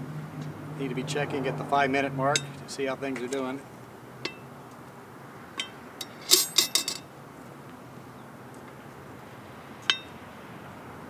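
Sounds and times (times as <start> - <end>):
metal tongs clinking: 5.6 - 7.0.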